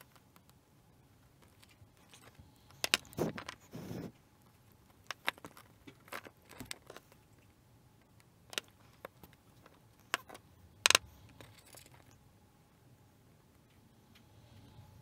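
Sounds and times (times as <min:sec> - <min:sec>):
wires clicking and tapping: 0:01.3 - 0:12.2.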